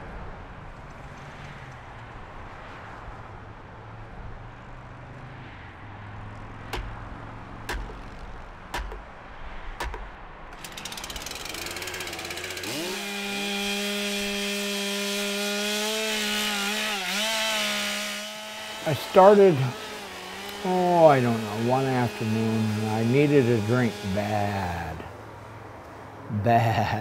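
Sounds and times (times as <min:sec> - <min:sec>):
sharp knocks: 0:06.7 - 0:10.8
chainsaw engine running: 0:09.9 - 0:25.1.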